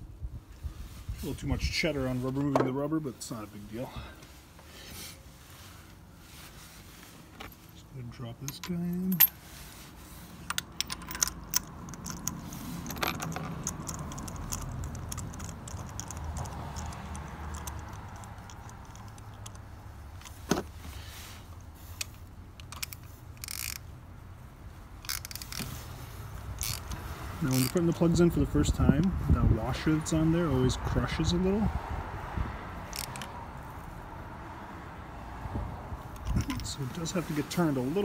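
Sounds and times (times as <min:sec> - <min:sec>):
metallic clicks of socket tool: 0:22.0 - 0:23.8.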